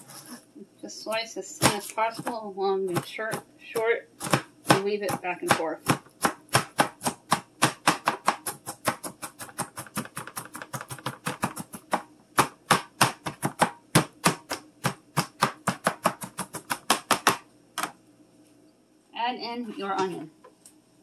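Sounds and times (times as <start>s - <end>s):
knife chopping on cutting board: 1.6s - 17.9s.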